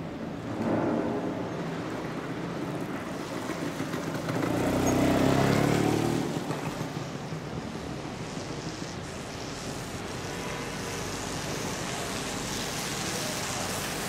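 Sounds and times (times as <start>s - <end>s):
street noise: 0.0s - 14.0s
motor vehicle passing: 0.4s - 7.0s.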